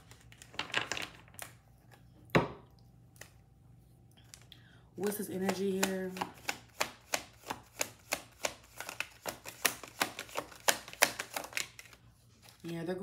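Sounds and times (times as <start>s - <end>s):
cards being shuffled: 4.2s - 12.9s.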